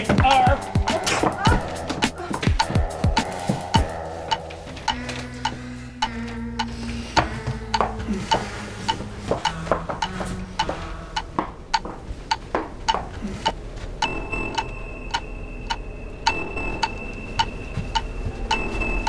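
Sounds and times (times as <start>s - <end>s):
even ticking: 0.0s - 19.0s
steady high tone: 14.0s - 19.0s.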